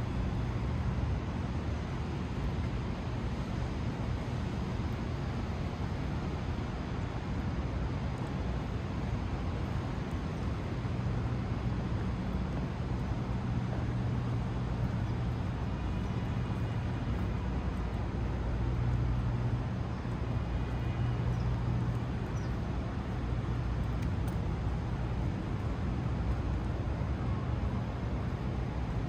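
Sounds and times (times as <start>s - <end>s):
constant traffic hiss: 0.0s - 29.0s
faint high whine: 0.0s - 29.0s
low engine hum of traffic: 0.0s - 29.0s.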